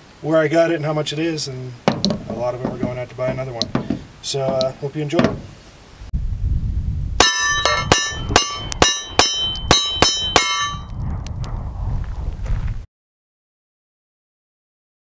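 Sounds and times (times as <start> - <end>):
metallic ringing: 7.2 - 11.0.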